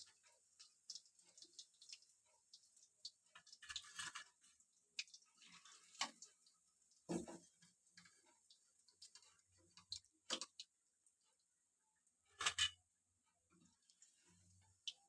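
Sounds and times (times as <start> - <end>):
metal spoon scraping a pan: 3.4 - 4.5, 12.3 - 12.8
fried food clattering onto plate: 12.4 - 12.8.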